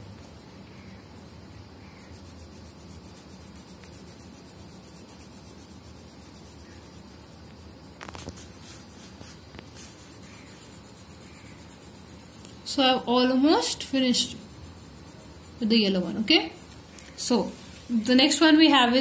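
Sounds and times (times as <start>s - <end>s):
pencil rubbing on paper: 2.0s - 16.8s.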